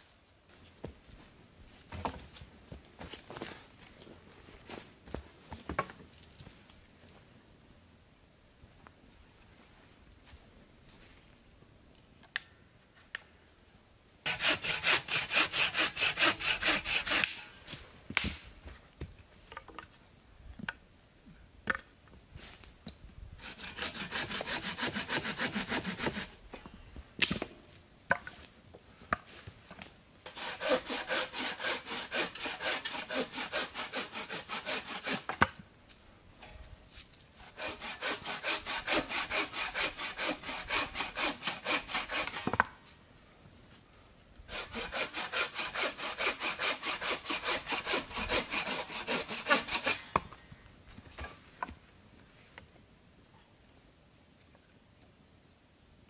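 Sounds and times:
hand saw cutting wood: 14.3s - 17.5s, 23.4s - 26.4s, 30.3s - 35.5s, 37.4s - 42.7s, 44.5s - 50.2s.

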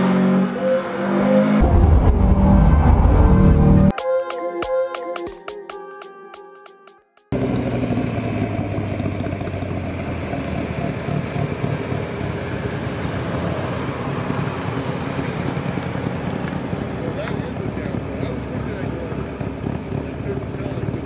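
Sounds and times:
car engine revving: 0.0s - 3.9s, 7.3s - 21.0s
tyres on pavement: 7.4s - 21.0s.

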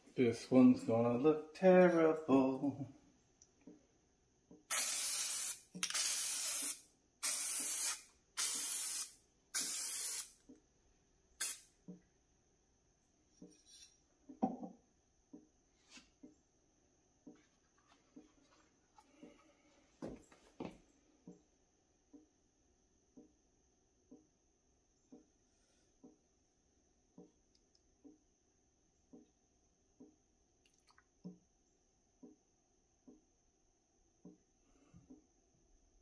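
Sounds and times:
aerosol can spraying: 4.7s - 10.4s, 11.4s - 11.7s.

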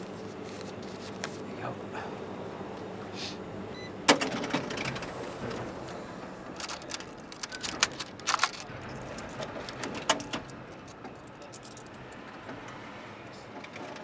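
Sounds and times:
coins clinking: 6.6s - 12.0s.

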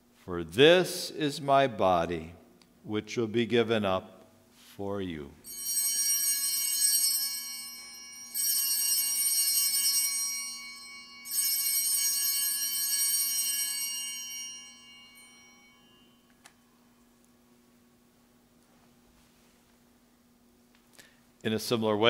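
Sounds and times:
altar bells ringing: 5.5s - 17.0s.

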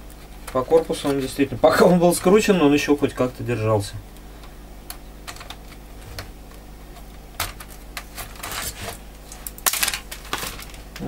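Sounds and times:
sharp plastic crack: 7.1s - 11.0s
plastic scraping rattle: 7.4s - 11.0s.

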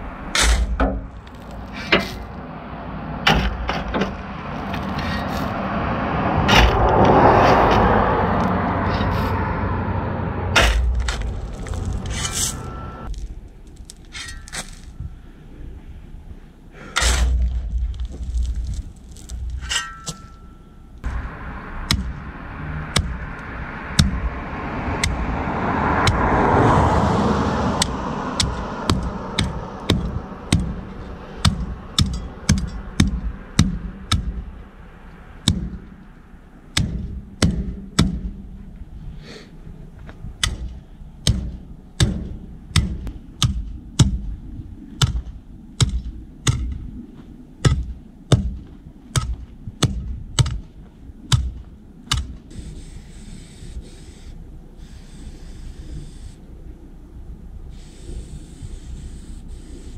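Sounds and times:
shovel scraping gravel: 0.3s - 2.4s, 4.6s - 5.6s, 6.5s - 9.5s, 10.6s - 15.0s, 16.9s - 20.8s
tamper pounding gravel: 10.6s - 15.0s, 17.0s - 20.6s.

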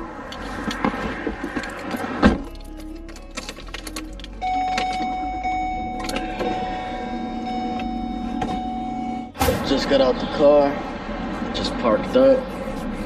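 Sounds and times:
car engine rumble from inside: 5.0s - 13.0s.

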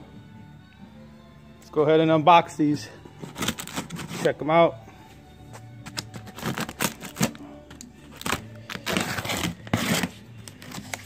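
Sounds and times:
faint background music: 0.0s - 11.0s
stretch wrap and tape ripping: 5.9s - 7.4s, 8.1s - 11.0s.

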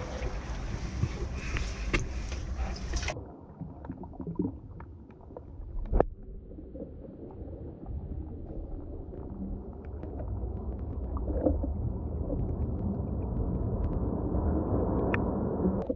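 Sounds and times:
wind noise: 0.0s - 3.2s
muffled underwater sound: 0.0s - 15.9s
water noise: 0.0s - 15.9s.

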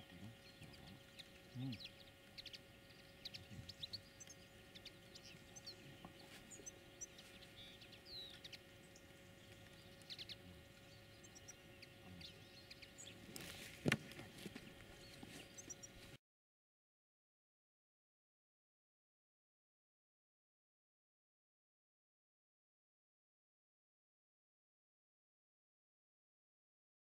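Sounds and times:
small birds chirping: 0.0s - 16.2s.

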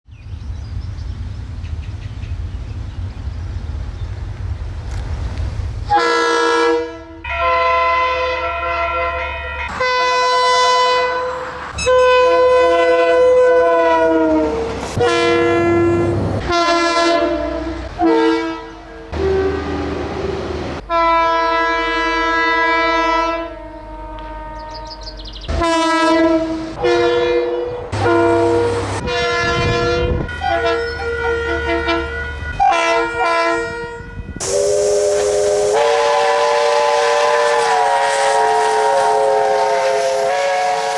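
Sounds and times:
locomotive air horn blasts: 5.9s - 40.9s
steam locomotive whistle: 5.9s - 40.9s
steam hiss: 34.4s - 40.9s.

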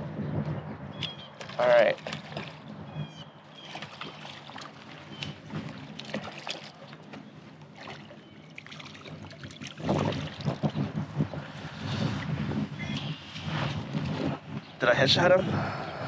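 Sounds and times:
fish splashing in water: 1.3s - 2.7s, 3.5s - 10.8s.

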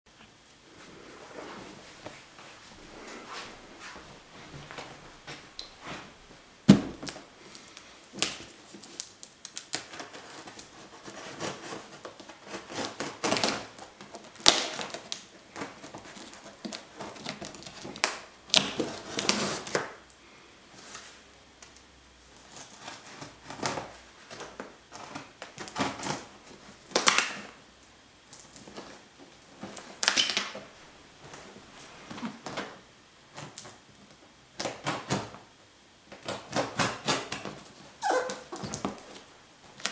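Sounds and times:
packing tape being pulled: 7.0s - 20.0s, 36.1s - 39.9s.

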